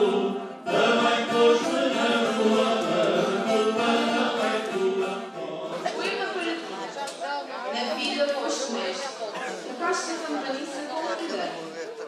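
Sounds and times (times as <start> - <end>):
men singing together: 0.0 - 6.8.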